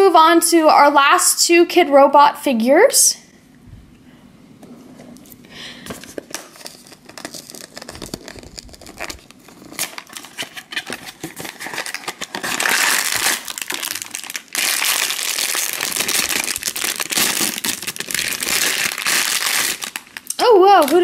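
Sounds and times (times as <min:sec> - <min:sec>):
foil bag crinkling: 0:05.7 - 0:21.0
cardboard box clicks and rustles: 0:05.9 - 0:12.7.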